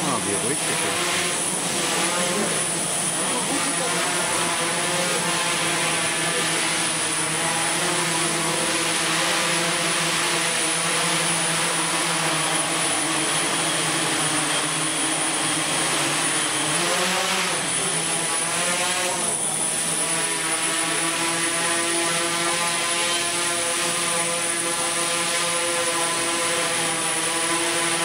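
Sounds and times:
drone propellers humming: 0:00.0 - 0:28.0.

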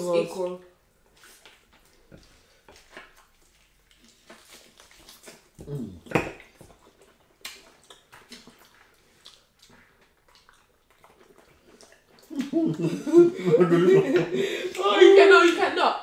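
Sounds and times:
people chewing: 0:00.0 - 0:15.6
lip-smacking: 0:01.2 - 0:13.0
wet mouth clicks: 0:01.4 - 0:12.6.

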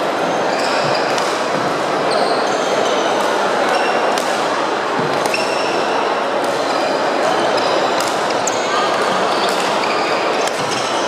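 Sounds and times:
hubbub of voices: 0:00.0 - 0:11.0
shoes squeaking on wooden court: 0:00.3 - 0:04.0, 0:08.4 - 0:11.0
racket hitting shuttlecock: 0:00.8 - 0:01.7, 0:04.0 - 0:05.6, 0:08.0 - 0:09.8, 0:10.4 - 0:11.0.

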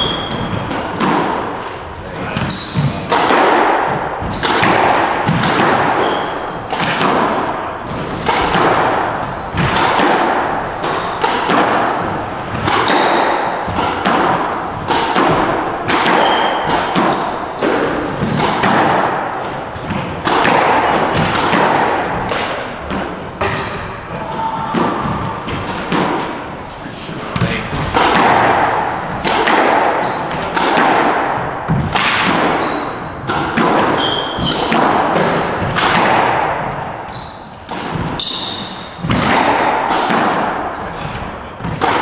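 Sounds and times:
shoes squeaking on floor: 0:00.0 - 0:03.1, 0:04.2 - 0:04.8, 0:05.6 - 0:06.6, 0:07.8 - 0:11.3, 0:12.1 - 0:18.4, 0:21.0 - 0:28.0, 0:30.0 - 0:35.6, 0:37.1 - 0:39.6
squash ball hits: 0:00.0 - 0:26.6, 0:27.2 - 0:42.0.

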